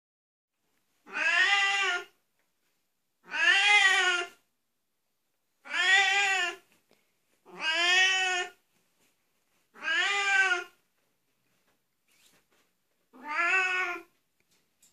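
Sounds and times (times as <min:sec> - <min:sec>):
cat meowing loudly: 0:01.0 - 0:02.2, 0:03.2 - 0:04.4, 0:05.6 - 0:06.6, 0:07.5 - 0:08.6, 0:09.7 - 0:10.8, 0:13.1 - 0:14.1.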